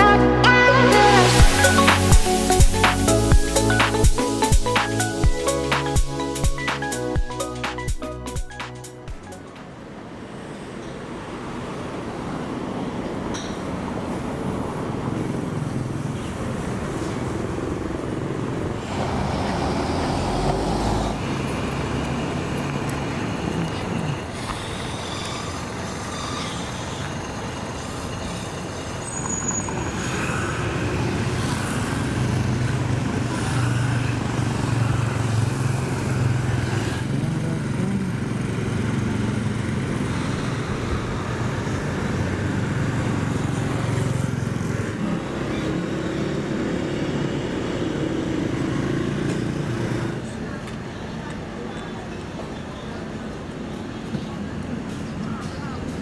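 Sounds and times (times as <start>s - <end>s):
motor scooters passing: 9.2s - 52.4s.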